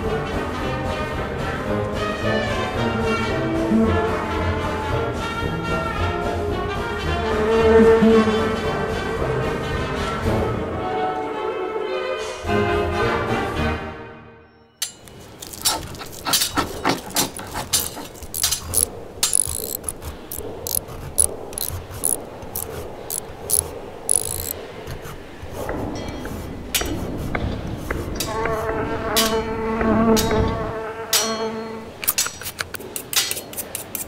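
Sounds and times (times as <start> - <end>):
scalpel scraping plaster: 15.0 - 26.5, 32.0 - 34.0.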